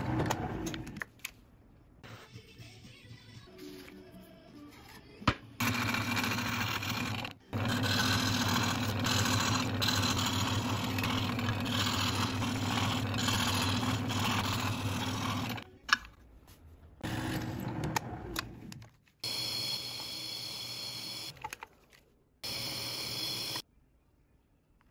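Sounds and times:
drill boring through wood: 0:05.6 - 0:15.6
scroll saw buzzing: 0:05.6 - 0:15.6.

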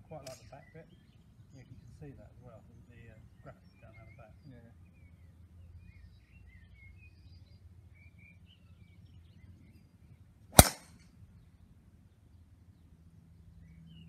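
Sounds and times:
golf club striking ball: 0:10.6 - 0:11.0.

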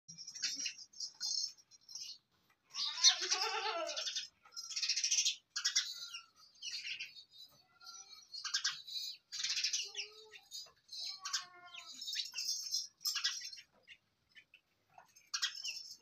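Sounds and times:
birds chirping: 0:00.1 - 0:16.0
goat kid bleating: 0:02.7 - 0:04.1, 0:09.8 - 0:12.0.

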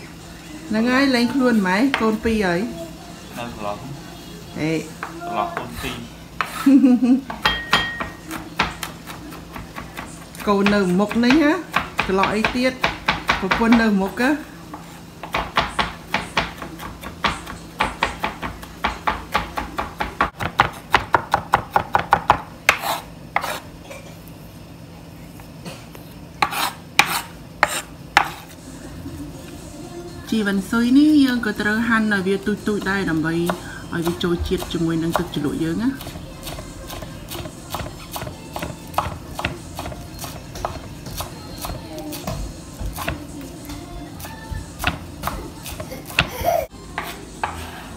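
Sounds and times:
knife chopping on wooden board: 0:06.4 - 0:06.6, 0:14.7 - 0:23.6, 0:26.4 - 0:28.5.

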